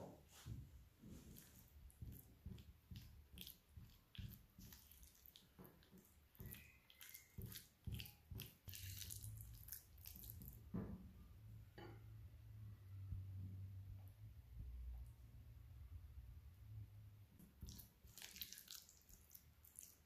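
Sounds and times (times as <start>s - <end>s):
spoon stirring in glass bowl: 1.3s - 10.5s.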